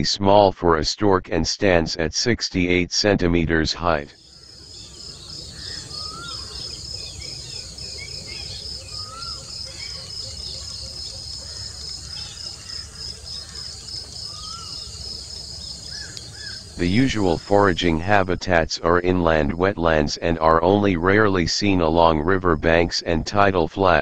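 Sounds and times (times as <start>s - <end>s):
bird call rising and falling: 4.2s - 17.4s
faint bird chirps: 4.2s - 17.8s
insects trilling: 4.2s - 17.8s.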